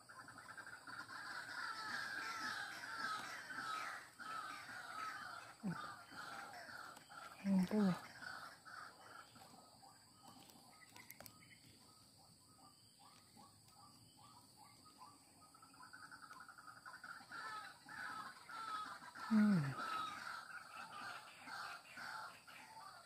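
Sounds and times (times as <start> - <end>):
short falling bird calls: 0.5 - 9.6, 15.9 - 23.0.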